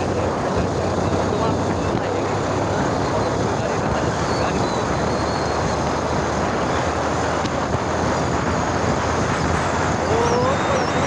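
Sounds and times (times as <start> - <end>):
motorcycle engine and wind rush: 0.0 - 11.0.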